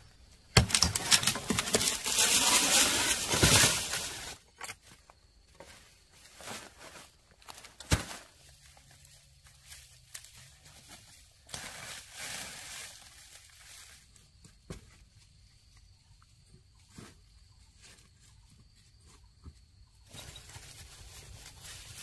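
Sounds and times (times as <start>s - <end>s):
dry leaves rustling and crackling: 0.6s - 4.4s, 6.2s - 14.2s, 20.2s - 22.0s.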